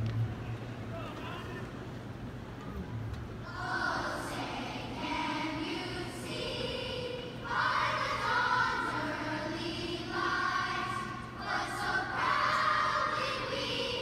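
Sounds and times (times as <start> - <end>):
choir singing long notes: 3.4 - 14.0.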